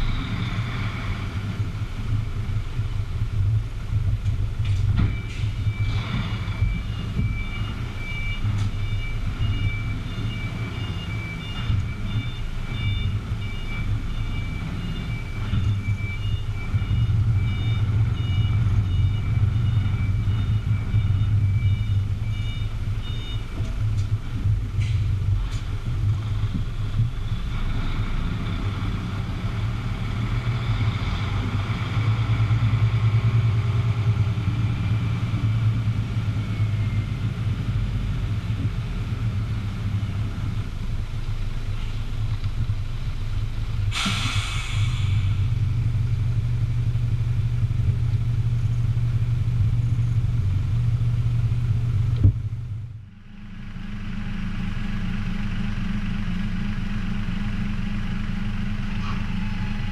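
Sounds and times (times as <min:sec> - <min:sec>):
diesel truck engine droning: 0:00.0 - 0:59.9
air brake hiss: 0:43.9 - 0:45.5.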